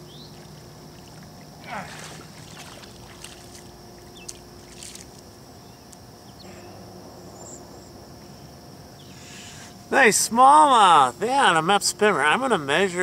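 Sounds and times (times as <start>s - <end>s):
faint steady hiss: 0.0s - 13.0s
soft water splashes: 0.3s - 5.3s.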